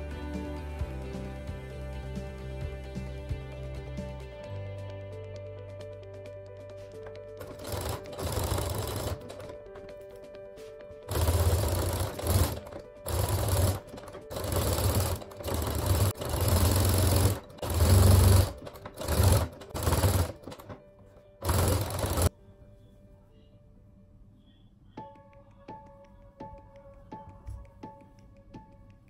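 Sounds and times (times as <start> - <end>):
faint background music: 0.0 - 29.0
sewing machine stitching: 7.4 - 10.0, 11.1 - 22.3.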